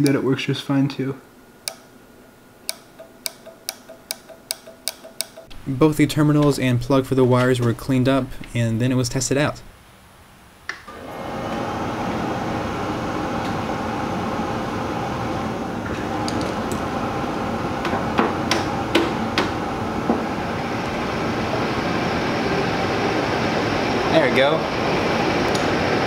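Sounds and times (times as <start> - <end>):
cooling fan whirring: 0.0 - 26.0
sharp clicks: 1.6 - 1.9, 2.7 - 5.6.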